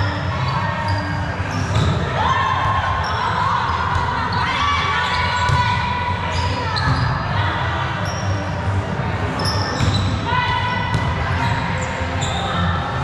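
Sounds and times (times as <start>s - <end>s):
shoes squeaking on court floor: 0.0s - 2.1s, 6.3s - 7.3s, 8.0s - 8.4s, 9.4s - 12.7s.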